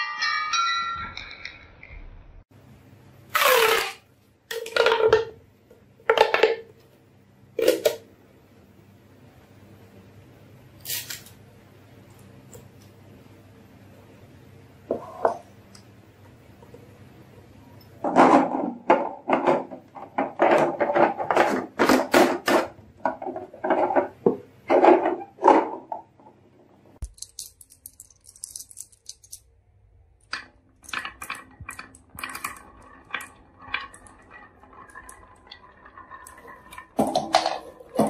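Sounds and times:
marbles rolling on wooden track: 30.3 - 38.0.

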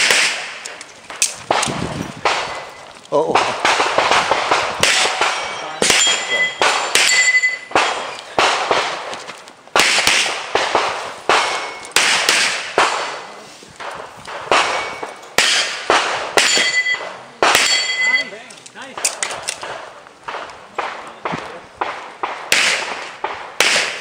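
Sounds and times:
pistol shots echoing: 0.0 - 18.2, 18.9 - 24.0
steel targets ringing: 4.8 - 8.2, 16.4 - 18.4.

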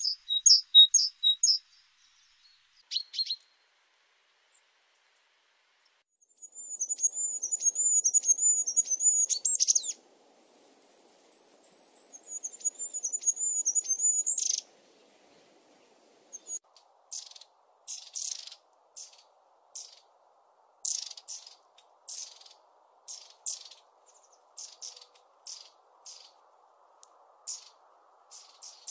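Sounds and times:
high thin trilling birdsong: 0.0 - 3.6, 6.2 - 20.1, 20.8 - 26.5, 27.4 - 28.9
short high bird calls: 6.4 - 14.7, 20.8 - 26.4.

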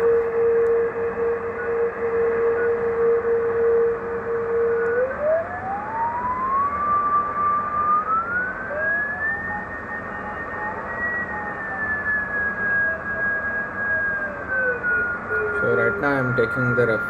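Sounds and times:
whistling beat tone rising: 4.4 - 16.8
radio band noise hiss: 9.9 - 17.0.

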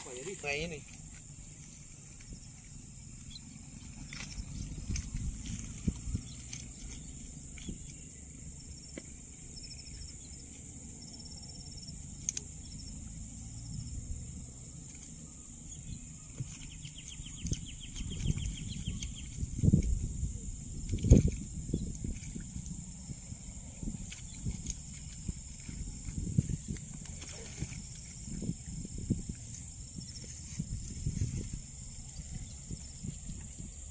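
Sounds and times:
rapid chirping trills: 9.4 - 13.0, 15.1 - 19.6.

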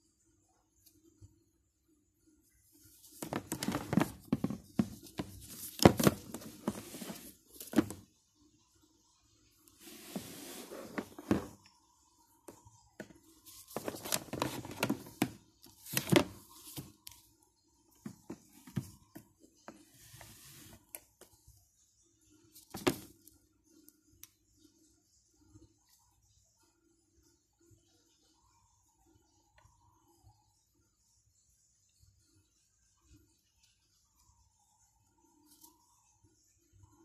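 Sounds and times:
hands handling objects rustling: 3.0 - 8.0, 9.8 - 11.6, 13.0 - 17.2.

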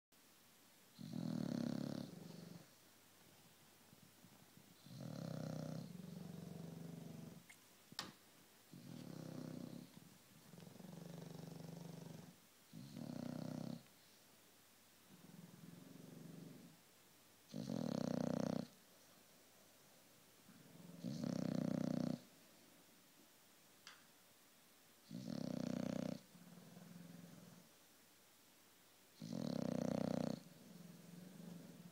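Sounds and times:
dog snoring: 1.0 - 2.8, 4.8 - 7.5, 8.7 - 13.9, 15.1 - 16.8, 17.5 - 18.8, 20.6 - 22.3, 25.0 - 27.7, 29.2 - 31.9.

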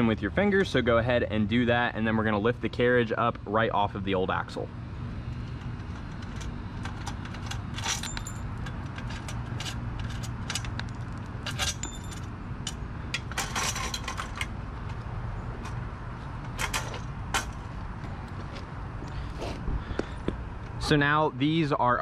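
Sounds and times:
low background hum: 0.0 - 22.0
metal cart frame clinking and rattling: 5.6 - 15.0, 16.4 - 17.7.

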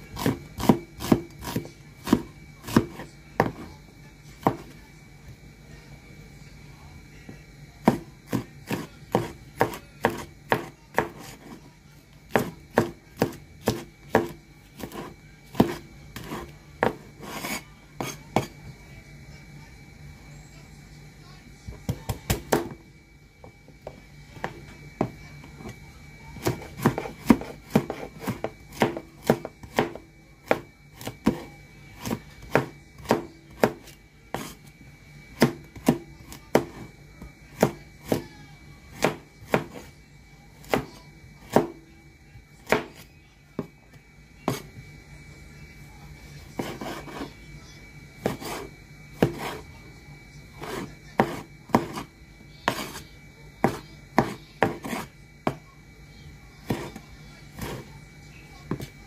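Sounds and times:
cleaver chopping on wooden board: 0.2 - 3.6, 7.8 - 11.6, 12.3 - 18.5, 26.4 - 34.5, 35.4 - 36.9, 48.2 - 49.6, 53.6 - 55.6.

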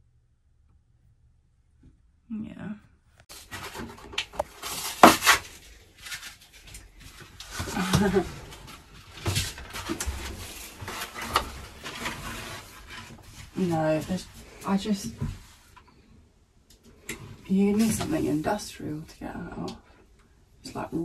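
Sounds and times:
hard foam scraping and cracking: 3.2 - 15.7.

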